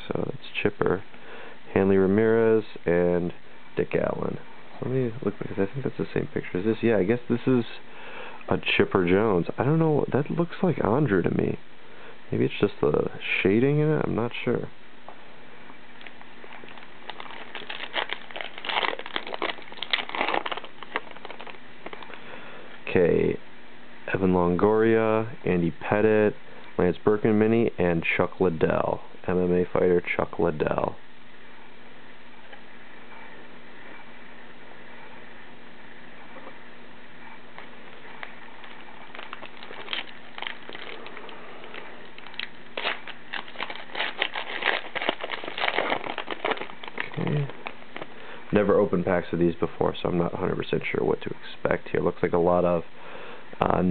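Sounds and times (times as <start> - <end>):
wrapper tearing and crinkling: 16.0 - 22.1, 38.6 - 48.2
cards being shuffled: 38.6 - 48.1.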